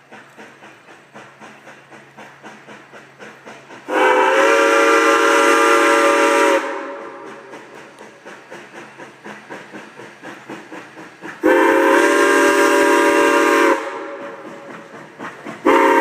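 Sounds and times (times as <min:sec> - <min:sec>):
steam train chuffing: 0:00.0 - 0:16.0
steam whistle blast: 0:03.9 - 0:07.2, 0:11.4 - 0:14.4, 0:15.6 - 0:16.0.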